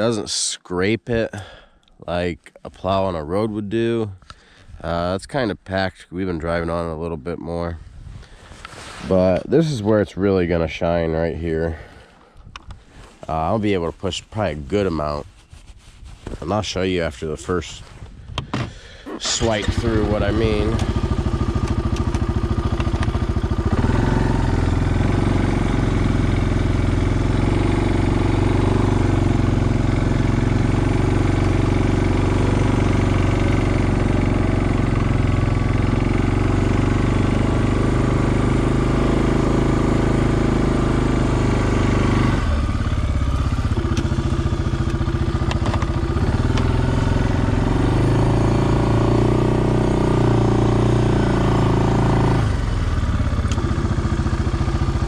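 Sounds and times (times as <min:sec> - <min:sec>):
plow blade pushing snow: 0:08.2 - 0:10.9, 0:18.6 - 0:55.0
atv engine running under load: 0:18.4 - 0:55.0.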